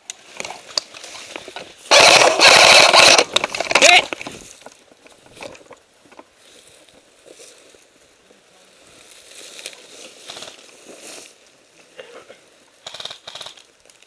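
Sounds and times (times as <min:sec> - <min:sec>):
rustling of gear and dry brush: 0:00.2 - 0:05.7, 0:08.7 - 0:11.8.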